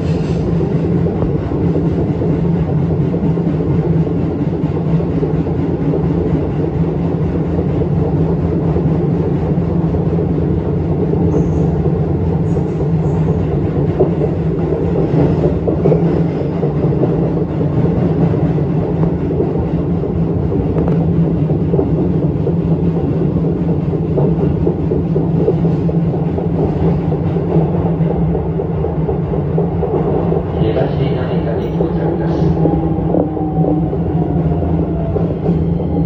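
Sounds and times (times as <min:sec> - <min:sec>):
train wheels rumbling on rails: 0:00.0 - 0:36.0.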